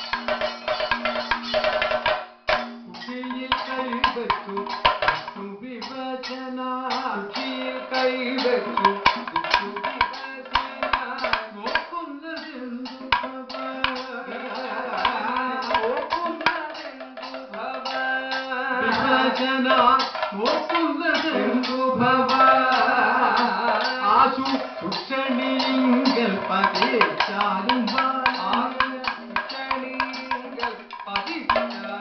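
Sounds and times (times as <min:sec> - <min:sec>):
drums beaten in quick strokes: 0:00.0 - 0:32.0
hand cymbals clashing: 0:00.0 - 0:32.0
people singing verses: 0:06.2 - 0:11.8, 0:12.4 - 0:32.0.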